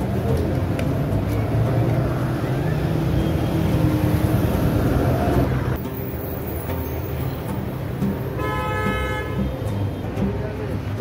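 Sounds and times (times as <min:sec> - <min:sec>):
passing cars and buses: 0:00.0 - 0:11.0
vehicle horn: 0:08.3 - 0:10.0.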